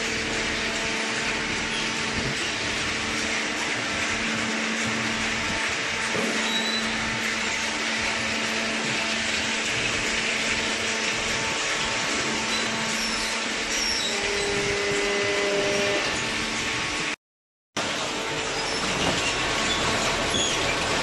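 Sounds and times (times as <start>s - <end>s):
baler machinery running: 0.0s - 17.2s, 17.8s - 21.0s.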